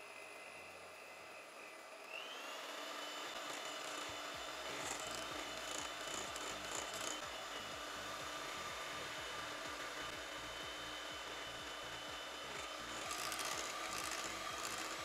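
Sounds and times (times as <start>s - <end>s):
electric hand mixer whine: 0.0s - 15.0s.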